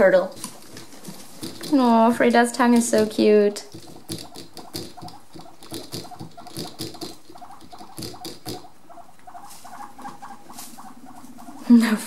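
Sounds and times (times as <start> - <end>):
guinea pig drinking clicks: 1.4 - 8.7.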